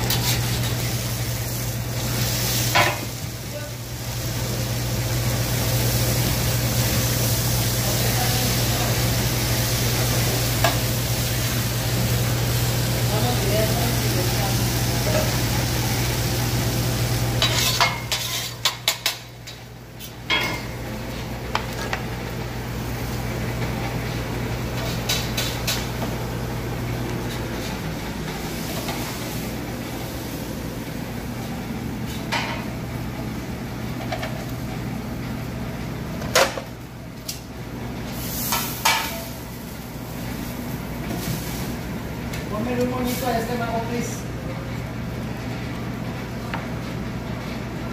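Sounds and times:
pans and utensils clattering: 0:17.4 - 0:19.3.

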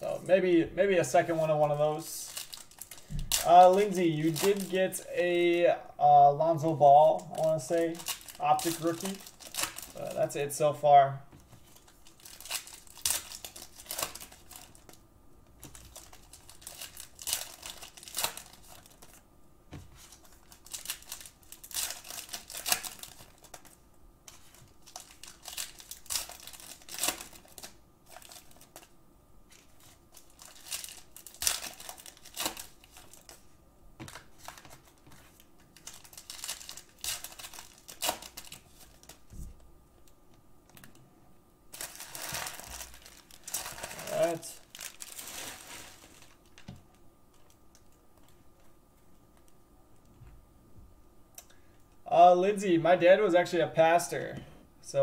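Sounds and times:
foil packs crinkling: 0:01.1 - 0:05.7, 0:06.6 - 0:10.4, 0:11.5 - 0:19.2, 0:19.9 - 0:28.9, 0:29.5 - 0:33.4, 0:34.0 - 0:39.4, 0:41.7 - 0:48.4.

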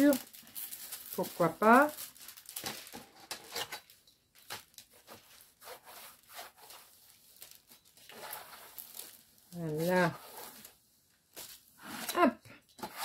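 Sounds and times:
packaging rustling: 0:00.0 - 0:11.8.

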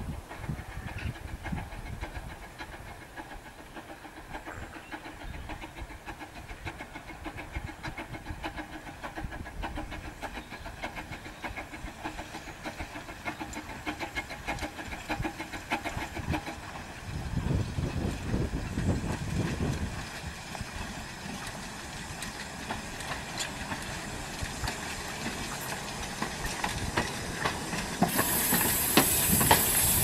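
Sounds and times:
steam locomotive chuffing: 0:00.0 - 0:30.0
steam hissing: 0:20.5 - 0:30.0.

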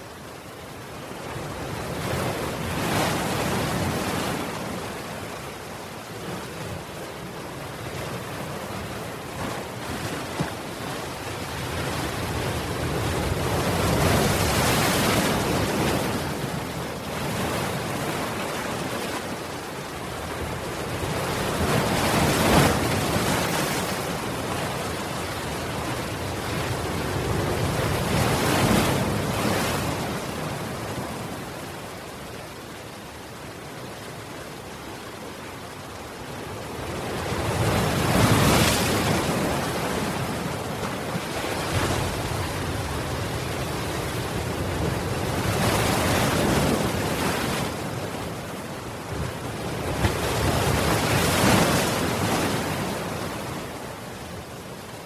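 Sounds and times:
ocean waves breaking: 0:00.0 - 0:55.0.

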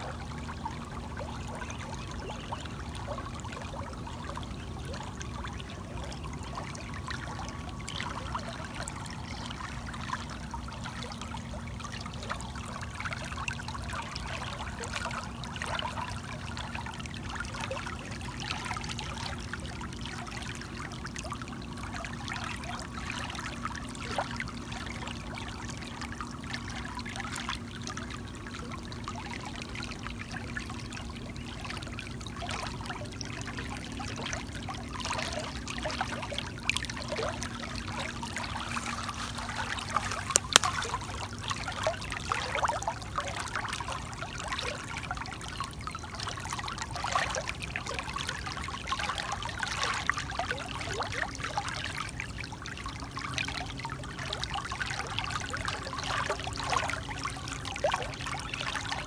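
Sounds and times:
water trickling and splashing: 0:00.0 - 0:59.0
sharp click: 0:40.3 - 0:40.7.

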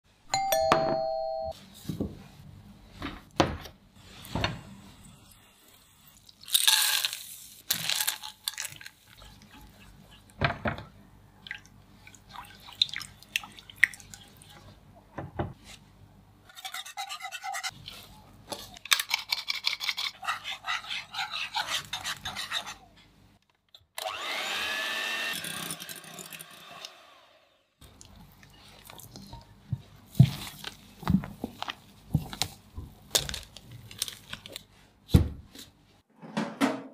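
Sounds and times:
spatula stirring chocolate: 0:08.7 - 0:10.4, 0:16.5 - 0:22.9.

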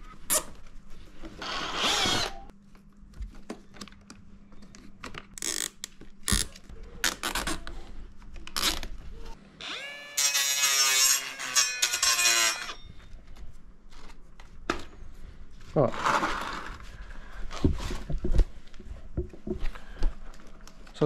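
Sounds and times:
power drill motor whining: 0:01.4 - 0:02.5, 0:09.6 - 0:12.8.

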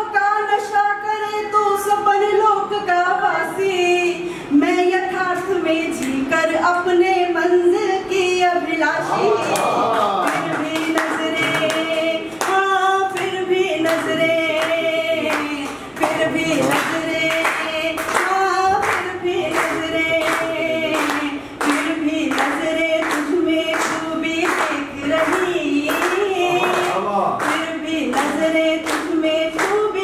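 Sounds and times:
woman singing into microphone: 0:00.0 - 0:09.4, 0:10.3 - 0:30.0
hands clapping in time: 0:09.5 - 0:30.0.

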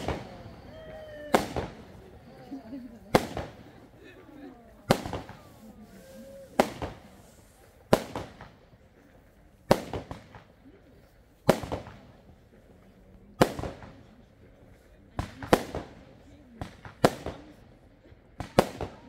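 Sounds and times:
firework bangs: 0:00.0 - 0:04.0, 0:04.8 - 0:10.6, 0:11.4 - 0:12.2, 0:13.4 - 0:14.0, 0:15.2 - 0:16.0, 0:18.4 - 0:19.0
faint firework pops: 0:04.9 - 0:12.4, 0:15.2 - 0:16.0, 0:16.6 - 0:17.6, 0:18.4 - 0:19.0.

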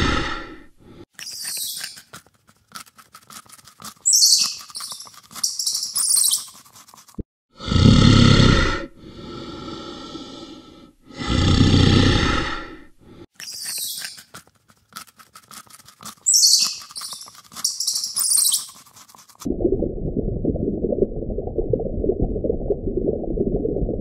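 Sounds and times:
high falling chirping calls: 0:01.2 - 0:02.1, 0:04.0 - 0:06.6, 0:13.4 - 0:14.3, 0:16.2 - 0:18.8.

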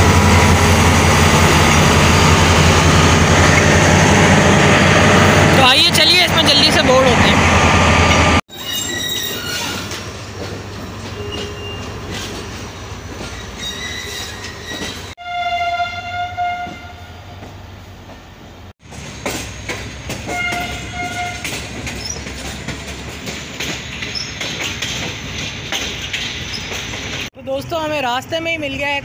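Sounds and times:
train running noise: 0:00.0 - 0:15.2, 0:16.3 - 0:29.0
wheels on rails: 0:17.4 - 0:27.3.

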